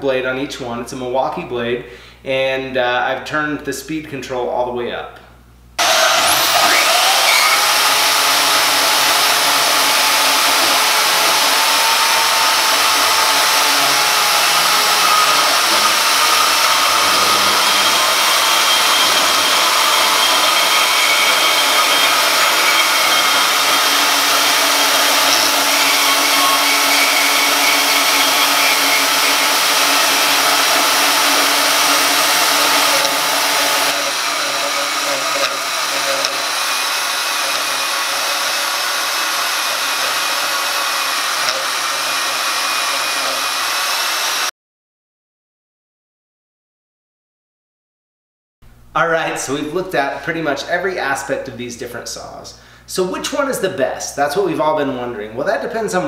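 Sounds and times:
bandsaw motor whine: 0:05.8 - 0:44.5
saw blade rasping through metal: 0:05.8 - 0:44.5.

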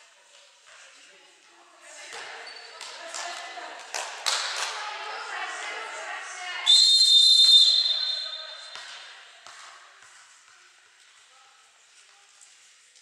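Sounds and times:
voices echoing in a hall: 0:00.0 - 0:13.0
referee's whistle blast: 0:06.7 - 0:08.5
ball bouncing: 0:08.6 - 0:10.7.

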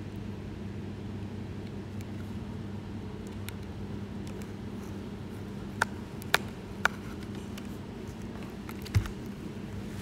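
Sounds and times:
steady low hum: 0:00.0 - 0:10.0
sharp plastic clicks: 0:05.8 - 0:07.7.

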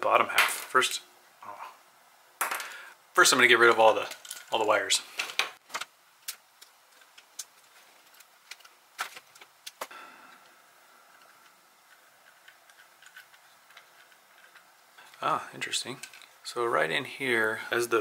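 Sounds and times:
plastic parts handled: 0:03.6 - 0:09.9, 0:11.1 - 0:16.4.

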